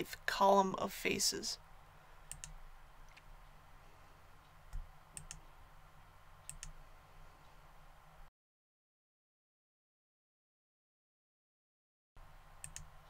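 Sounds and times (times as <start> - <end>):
faint steady low hum: 0.0 - 8.3, 12.2 - 13.0
computer mouse clicks: 2.3 - 3.3, 4.7 - 5.5, 6.4 - 6.8, 12.6 - 12.9.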